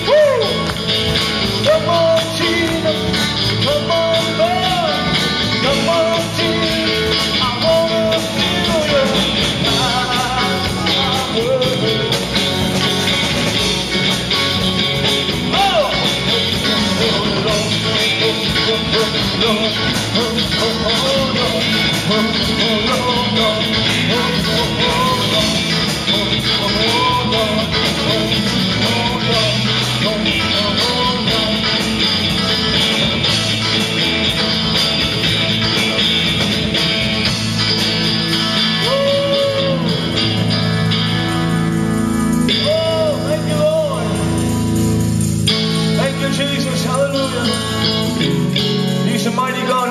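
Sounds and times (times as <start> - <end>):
man singing: 0.0 - 12.8, 15.3 - 33.0, 38.6 - 40.4, 42.5 - 44.5, 45.8 - 49.9
steady drum beat: 0.0 - 49.3
electric guitar: 0.0 - 49.9.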